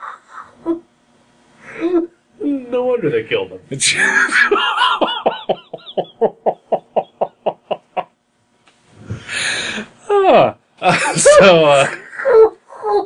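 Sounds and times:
man laughing: 3.9s - 8.1s, 10.8s - 12.5s
noisy breath: 8.9s - 10.0s.

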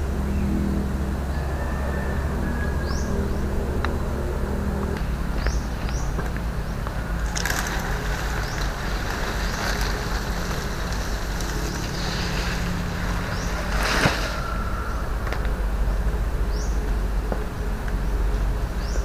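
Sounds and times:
faint hum: 0.0s - 19.0s
low rumble: 0.0s - 19.0s
frond rustling on ground: 6.8s - 15.8s.

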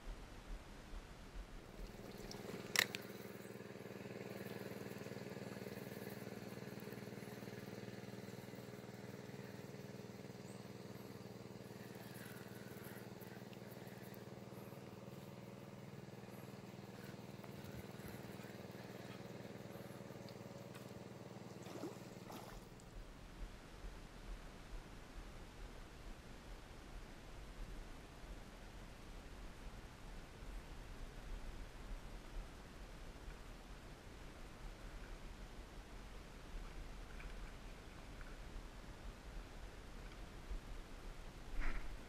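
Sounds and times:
motor humming: 1.6s - 22.9s.

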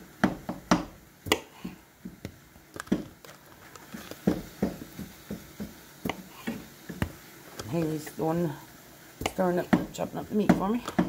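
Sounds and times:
knife chopping on countertop: 9.2s - 11.0s.

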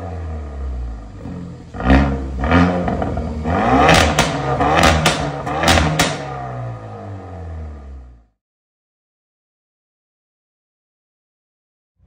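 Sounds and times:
car engine revving: 0.0s - 8.4s
exhaust pops and cracks: 3.9s - 6.4s.

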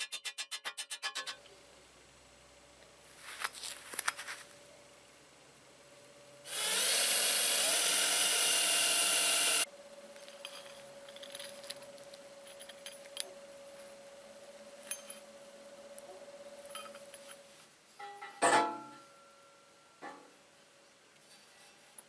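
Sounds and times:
cordless drill whining: 6.5s - 9.7s
small steel parts clinking: 10.2s - 13.4s, 14.8s - 16.0s, 16.6s - 18.6s.

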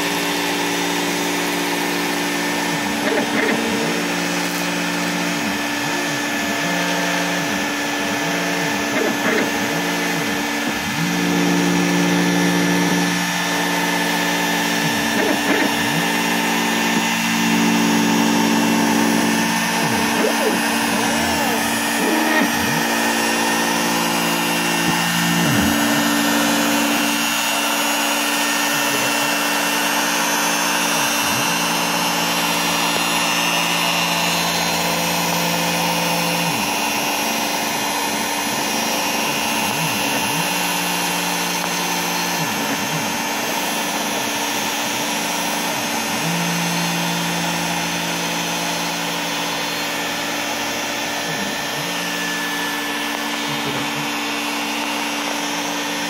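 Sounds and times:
machine motors whining: 0.0s - 56.0s
trim router spinning: 0.0s - 56.0s
vacuum running: 0.0s - 56.0s.

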